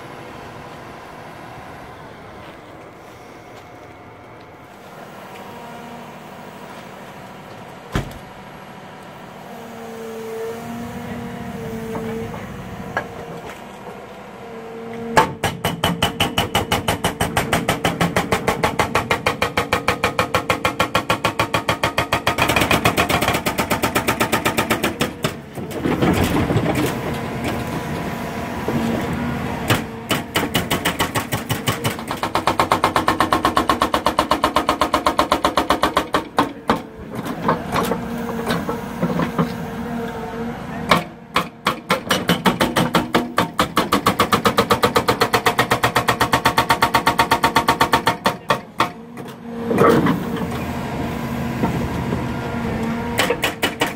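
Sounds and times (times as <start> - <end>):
excavator engine humming: 0.0 - 53.9
hydraulic breaker hammering: 15.2 - 26.8, 29.6 - 39.4, 40.9 - 50.5, 53.1 - 53.9.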